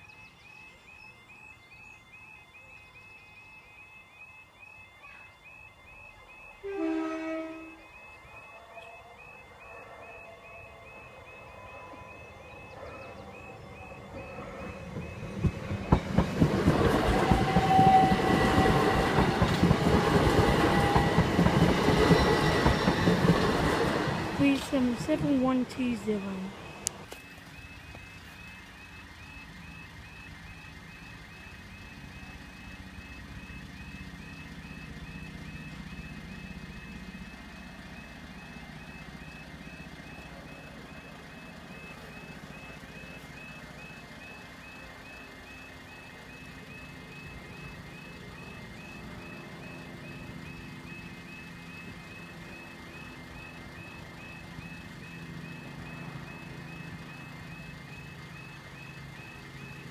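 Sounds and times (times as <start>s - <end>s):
level crossing alarm warbling: 0.0s - 59.9s.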